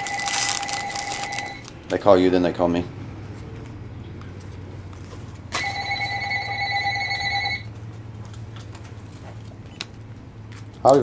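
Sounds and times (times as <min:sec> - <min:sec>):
telephone ringing: 0:00.0 - 0:01.7, 0:05.5 - 0:07.7.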